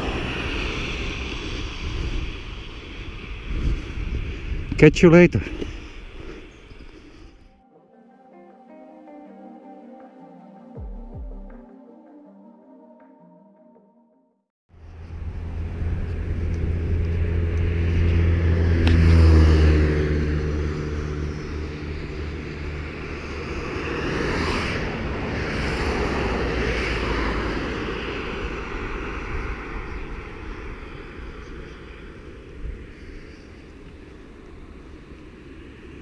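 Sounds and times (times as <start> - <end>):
cars hissing past on tyres: 0.0 - 4.7, 14.8 - 36.0
vehicle engine drone passing: 0.0 - 4.7, 14.7 - 36.0.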